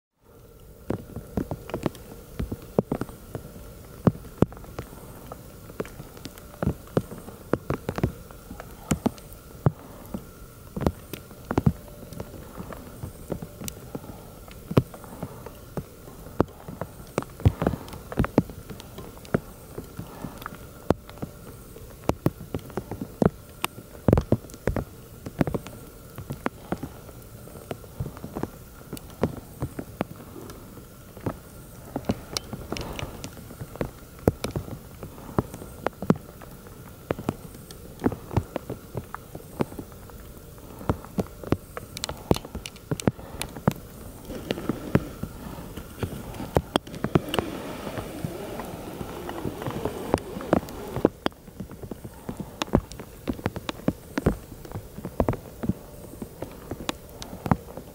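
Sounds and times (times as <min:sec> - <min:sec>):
hailstones hitting rock and grass: 0:40.6 - 0:55.8.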